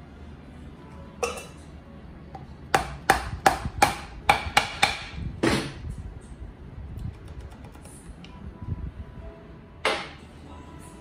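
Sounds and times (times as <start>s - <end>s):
hammer knocking on metal shaft: 2.7s - 5.2s.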